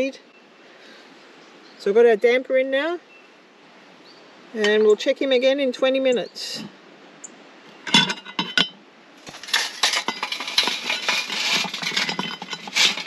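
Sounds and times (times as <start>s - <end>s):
heat beads clinking on metal lid: 7.9s - 13.0s.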